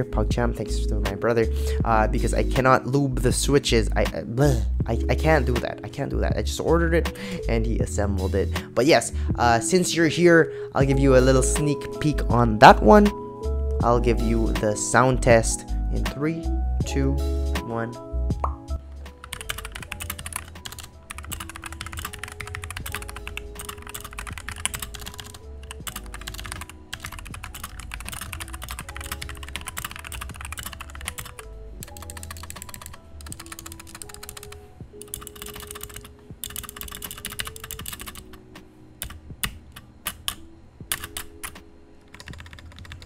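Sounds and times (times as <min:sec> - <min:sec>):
background music: 0:00.0 - 0:43.0
mechanical keyboard typing: 0:19.3 - 0:38.4, 0:39.0 - 0:43.0.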